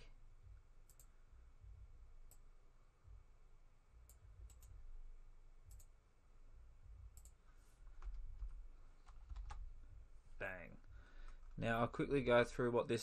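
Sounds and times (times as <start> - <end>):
low steady rumble: 0.0 - 12.7.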